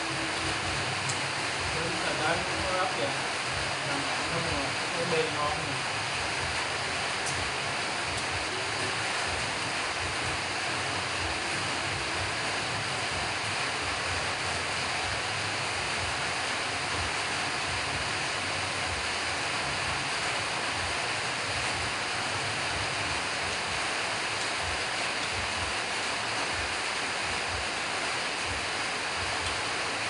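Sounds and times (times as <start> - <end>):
steady rushing noise: 0.0 - 30.0.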